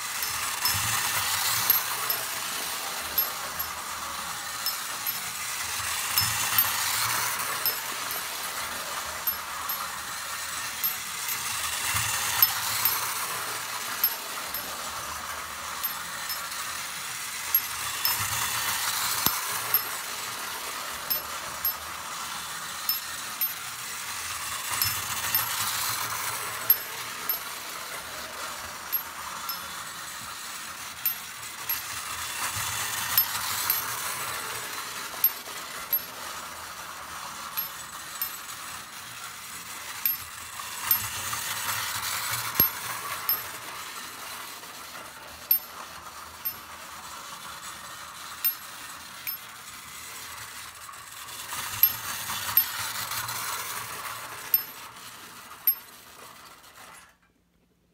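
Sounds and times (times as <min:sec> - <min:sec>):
toy train whirring: 0:00.0 - 0:57.4.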